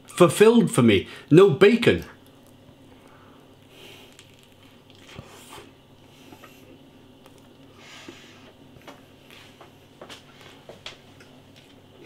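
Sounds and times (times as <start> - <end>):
faint chewing: 3.6 - 7.7.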